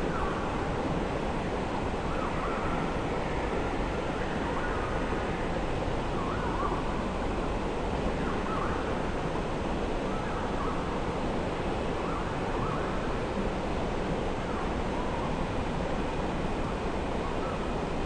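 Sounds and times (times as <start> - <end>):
flowing river water: 0.0 - 18.0.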